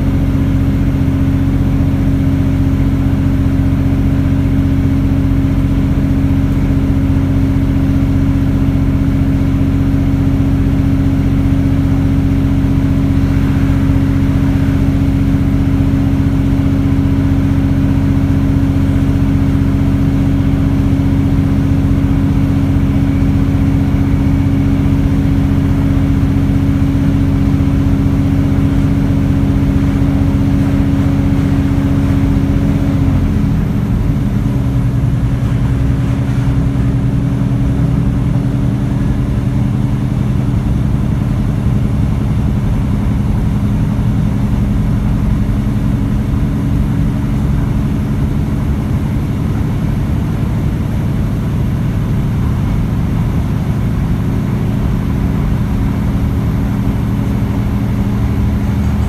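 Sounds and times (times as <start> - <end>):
diesel engine droning: 0.0 - 59.0
train wheels rumbling on track: 3.2 - 59.0.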